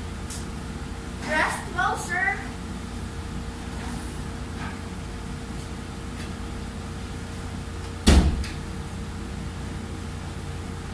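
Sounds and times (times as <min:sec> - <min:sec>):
steady low hum: 0:00.0 - 0:10.9
door banging shut: 0:08.0 - 0:08.6.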